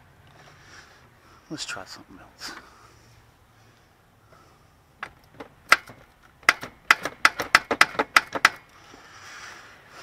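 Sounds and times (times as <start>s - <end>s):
hammer tapping on metal: 5.7s - 8.6s.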